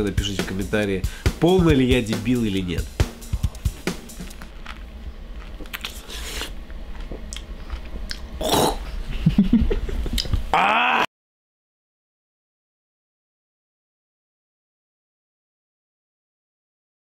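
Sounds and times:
person chewing wet mouth sounds: 3.3 - 8.9.

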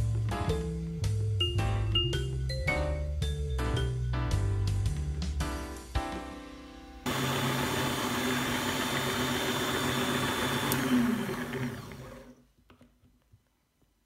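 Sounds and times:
stand mixer motor running: 7.1 - 12.4
mixer switch click: 10.6 - 10.9.

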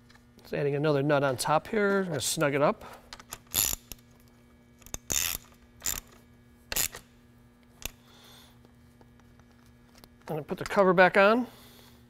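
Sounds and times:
socket ratchet clicking: 3.2 - 4.0, 4.8 - 7.1.

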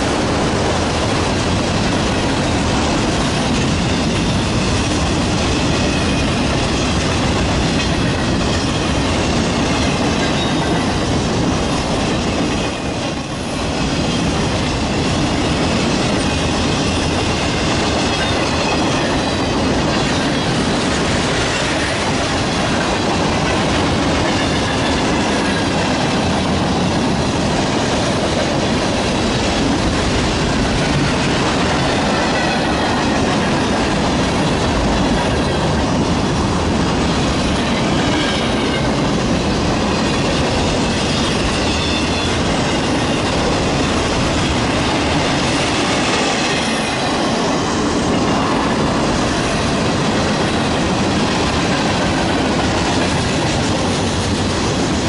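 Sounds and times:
steel wheels rolling on rail: 0.0 - 55.0
high-pitched wheel squeals: 41.1 - 42.4.

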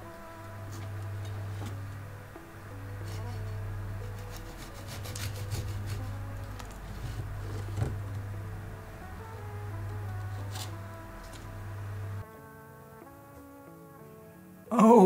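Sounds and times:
bread knife sawing through crust: 3.0 - 7.9.

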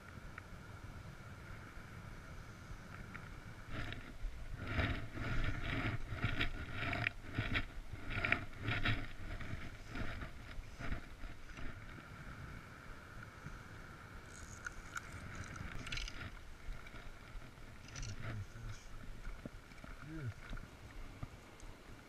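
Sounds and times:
fly reel clicking: 14.3 - 16.4, 17.8 - 18.3.

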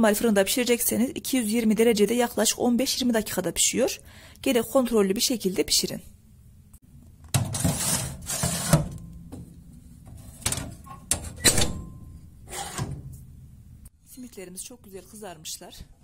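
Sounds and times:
metal tray scraping into oven: 7.5 - 9.0, 12.4 - 13.1
oven door knocks and clanks: 8.6 - 13.2.

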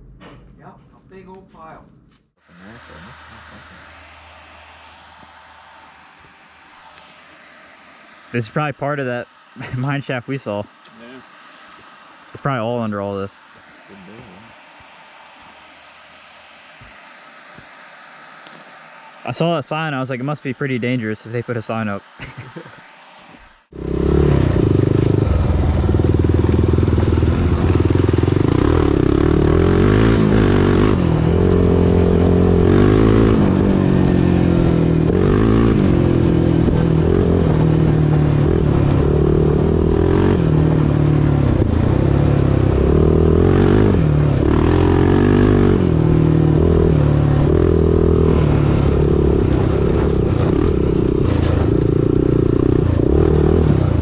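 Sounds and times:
atv engine revving: 23.7 - 54.0.

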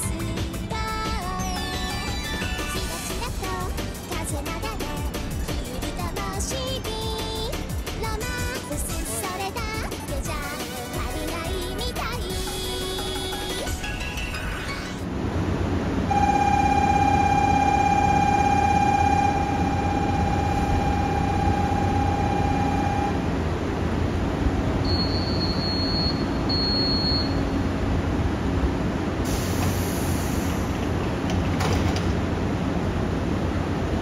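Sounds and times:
electric train humming: 0.0 - 26.6
steady electronic tone: 16.1 - 23.3
short high beeps: 24.9 - 27.6
brief hiss: 29.3 - 30.7.

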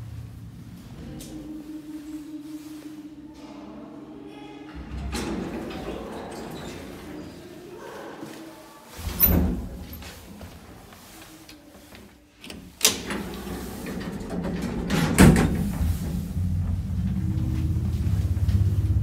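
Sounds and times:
lift motor rumble: 0.0 - 4.1, 12.4 - 19.0
lift doors clunking shut: 4.7 - 7.5, 12.4 - 19.0.

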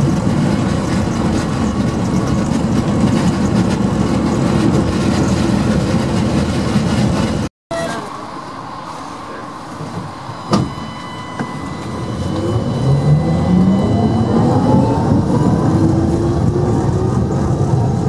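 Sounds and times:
tram running rumble: 0.0 - 18.0
traction motor whine: 7.8 - 17.2.

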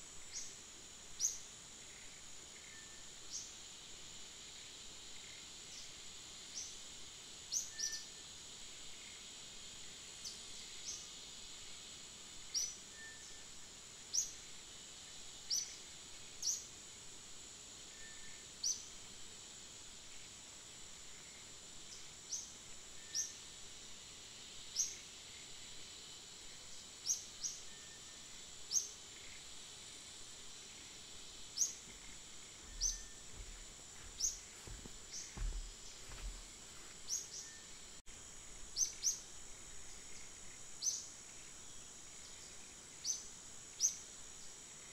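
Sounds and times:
high insect drone: 0.0 - 44.9
faint low thuds: 31.8 - 36.9
high bird chirps: 32.7 - 33.2.

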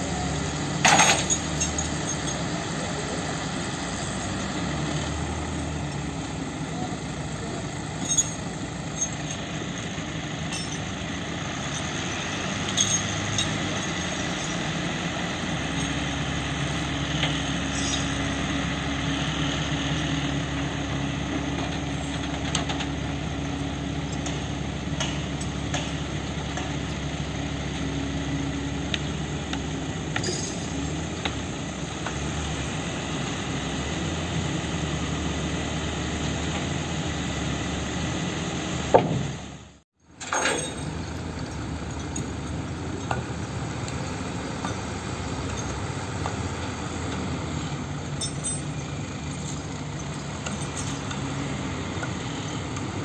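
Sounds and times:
diesel truck engine running: 0.0 - 53.0
lifting chains clanking: 0.8 - 2.5, 7.9 - 18.2, 30.2 - 30.9, 40.1 - 43.4, 44.6 - 46.0, 48.0 - 51.4.

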